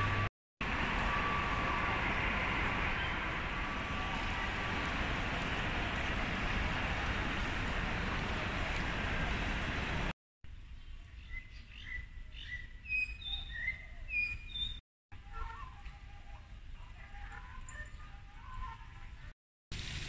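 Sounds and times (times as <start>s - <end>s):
birds chirping: 10.8s - 14.8s.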